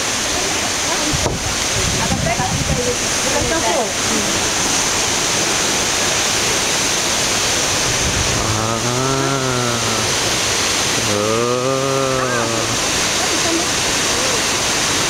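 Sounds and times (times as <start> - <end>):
waterfall rushing: 0.0 - 15.0
man's long drawn-out call: 8.4 - 12.9.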